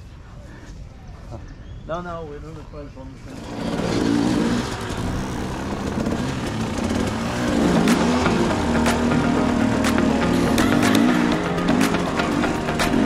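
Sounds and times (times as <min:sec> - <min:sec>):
motorcycle engine revving: 0:03.2 - 0:13.0.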